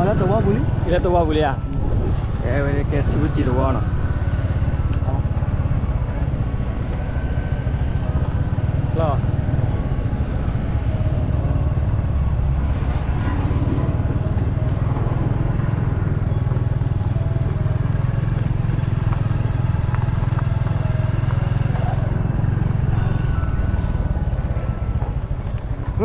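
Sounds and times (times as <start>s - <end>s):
vehicle engine and road noise: 0.0s - 26.0s
faint voices: 20.8s - 26.0s.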